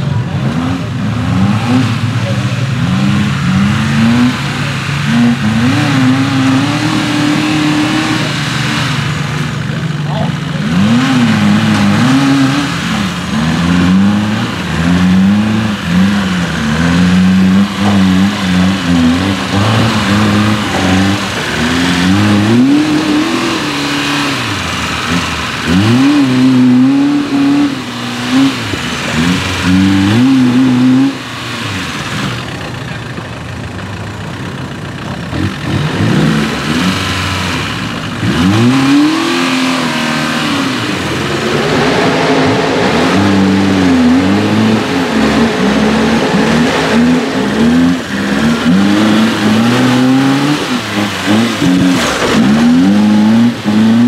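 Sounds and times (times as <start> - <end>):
buggy engine revving: 0.0 - 54.0.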